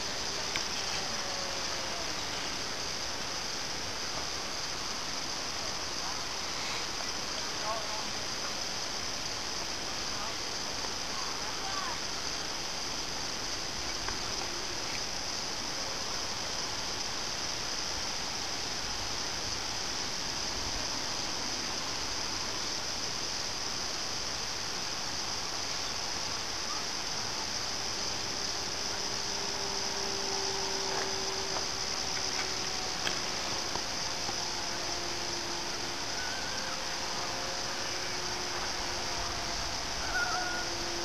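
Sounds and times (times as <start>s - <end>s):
model plane motor drone: 0.0s - 3.1s, 27.2s - 41.0s
steady high-pitched hiss: 0.0s - 41.0s.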